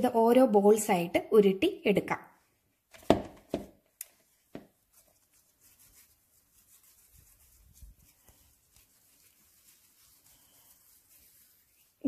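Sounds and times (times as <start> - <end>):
hands rubbing dough: 2.9 - 12.0.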